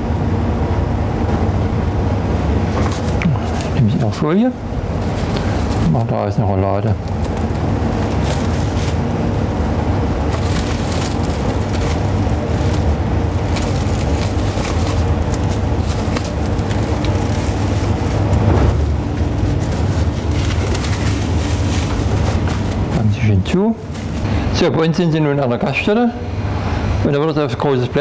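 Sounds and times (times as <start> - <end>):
low machine hum: 0.0 - 28.0
cling film crinkling: 2.8 - 24.4.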